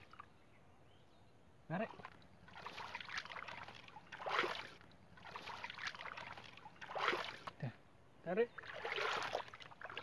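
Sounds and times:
hands splashing in muddy water: 0:02.5 - 0:07.6, 0:08.6 - 0:10.0.

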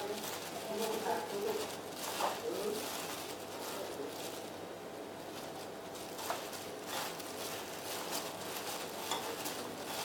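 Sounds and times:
gloved hand rustling in breadcrumbs: 0:00.0 - 0:10.0.

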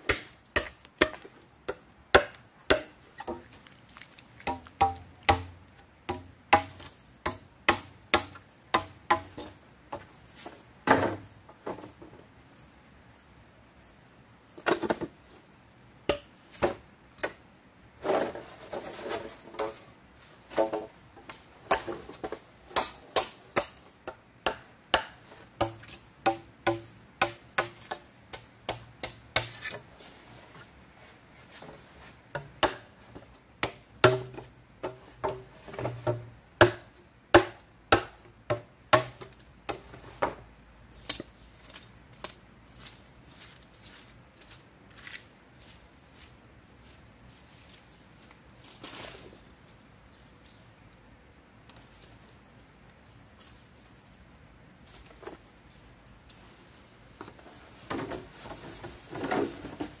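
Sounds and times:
crickets chirring: 0:00.0 - 1:00.0
hand tool knocking on bamboo: 0:04.4 - 0:05.5.

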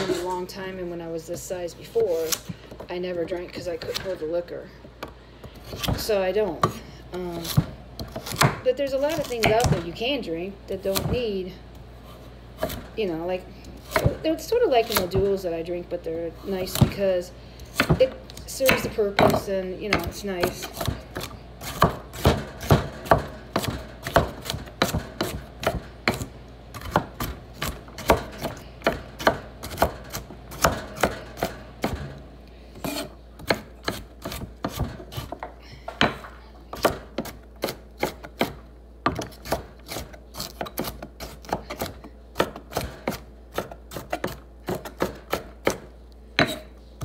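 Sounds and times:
knife chopping on cutting board: 0:07.4 - 0:09.8, 0:17.7 - 0:32.2, 0:32.8 - 0:46.7.

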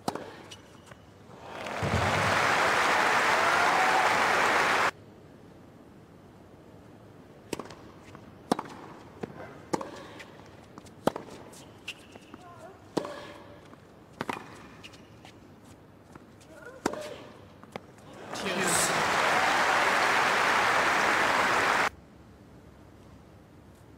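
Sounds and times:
crowd applauding: 0:01.4 - 0:04.9, 0:18.2 - 0:21.9.

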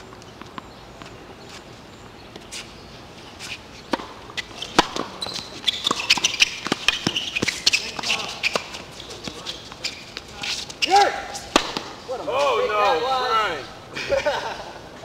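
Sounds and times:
high squeaking: 0:03.4 - 0:13.0
tennis ball hits and bounces: 0:03.9 - 0:12.6.

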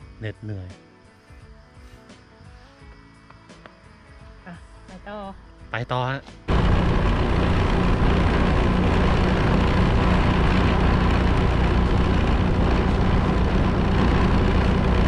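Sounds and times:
motorcycle engine hum: 0:06.5 - 0:15.0
wind and road noise: 0:06.5 - 0:15.0.

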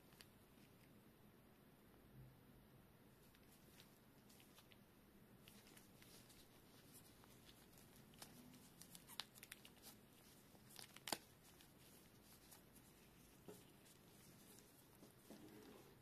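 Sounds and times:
small clicks and rustles: 0:00.0 - 0:01.0, 0:03.2 - 0:16.0
fingers rubbing a cable: 0:05.4 - 0:16.0.

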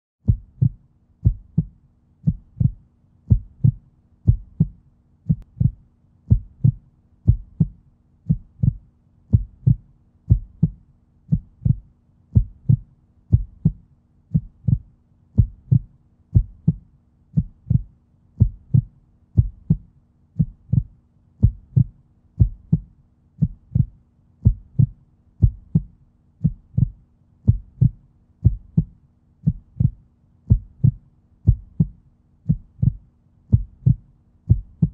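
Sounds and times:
heartbeat double thumps: 0:00.2 - 0:34.9.

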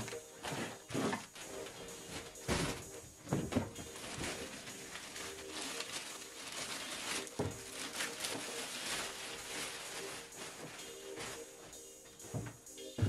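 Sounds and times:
plastic wrapping crinkling: 0:00.0 - 0:11.8.

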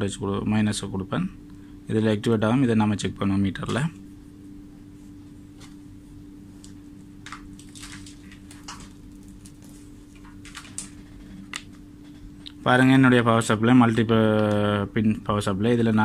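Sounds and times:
steady low hum: 0:00.0 - 0:16.0
wires and plug rustling: 0:06.6 - 0:12.3.

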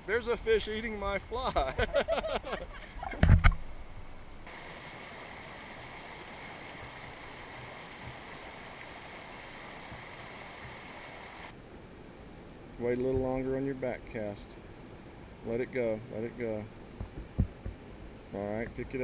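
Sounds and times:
creek water rushing over rocks: 0:04.4 - 0:11.6.

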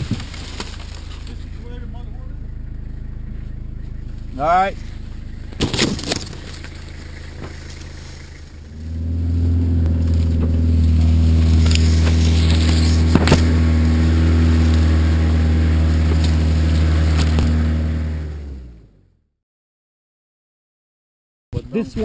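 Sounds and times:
grass brushing against car body: 0:00.0 - 0:02.0, 0:03.0 - 0:17.9
vehicle engine droning: 0:00.0 - 0:19.3.

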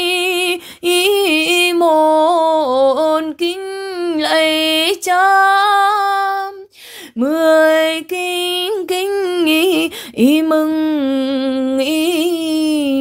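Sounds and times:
woman breathing: 0:00.6 - 0:00.8, 0:06.7 - 0:07.2, 0:09.9 - 0:10.2.

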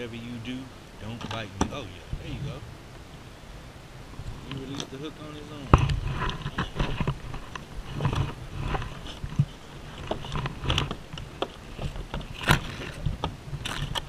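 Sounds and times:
fishing gear clicks and knocks: 0:05.8 - 0:14.0.

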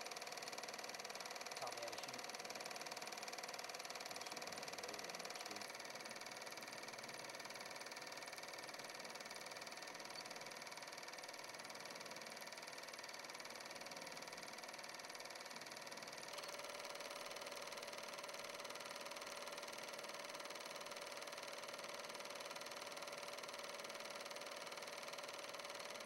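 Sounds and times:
small machine whirring: 0:00.0 - 0:26.0.

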